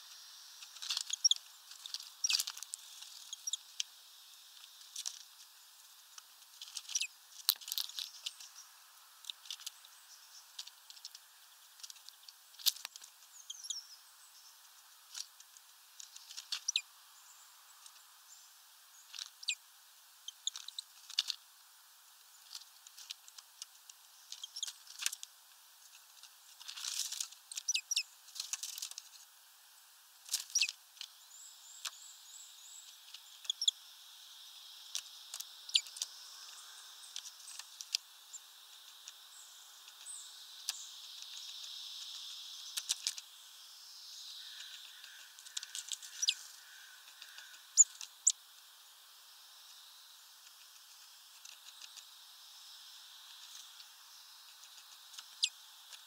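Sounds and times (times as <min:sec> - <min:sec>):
faint high bird chirps: 0:00.0 - 0:04.4, 0:06.6 - 0:10.6, 0:11.4 - 0:15.2, 0:16.1 - 0:21.4, 0:24.1 - 0:25.1, 0:27.1 - 0:28.2, 0:30.4 - 0:48.5, 0:51.4 - 0:56.0
beaks pecking at seeds: 0:00.0 - 0:29.4, 0:30.2 - 0:56.0.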